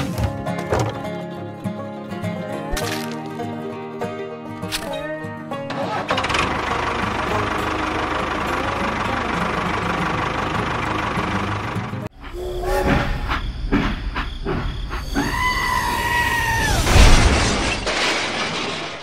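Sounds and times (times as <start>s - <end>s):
tractor engine: 4.7s - 13.0s
loud crash: 16.6s - 19.0s.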